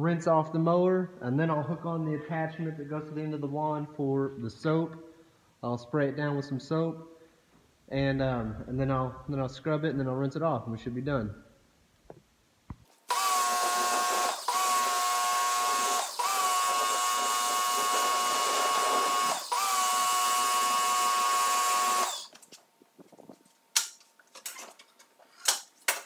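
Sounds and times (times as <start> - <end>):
pressure washer motor whine: 13.1 - 22.3.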